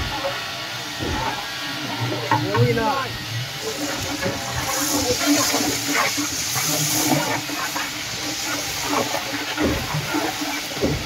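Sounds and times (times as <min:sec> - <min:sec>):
leaves sizzling in hot oil: 0:02.3 - 0:11.0.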